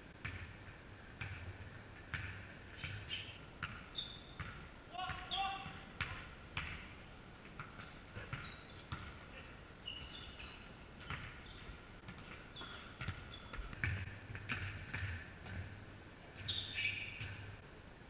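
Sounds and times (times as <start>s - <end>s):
basketball bouncing on wooden floor: 0.2s - 0.6s, 1.2s - 6.9s, 7.6s - 9.2s, 11.0s - 15.8s
sneaker squeaks: 2.8s - 6.1s, 7.6s - 9.1s, 9.8s - 14.0s, 16.4s - 17.5s.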